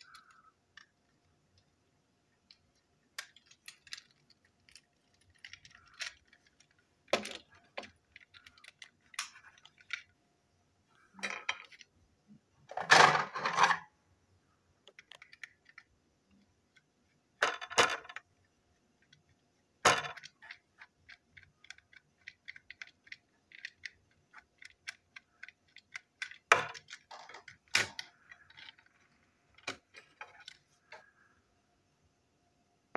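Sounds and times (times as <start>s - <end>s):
toy parts clicking and clinking: 0.0s - 1.7s, 2.4s - 10.2s, 11.1s - 11.9s, 14.9s - 18.3s, 19.0s - 31.1s.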